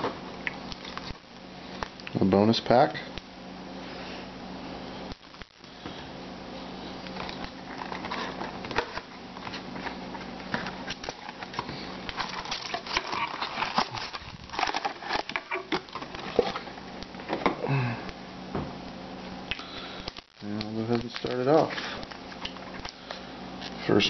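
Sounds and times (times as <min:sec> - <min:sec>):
steady low hum: 0:00.0 - 0:24.0
foil card packs rustling: 0:07.0 - 0:17.3, 0:19.8 - 0:24.0.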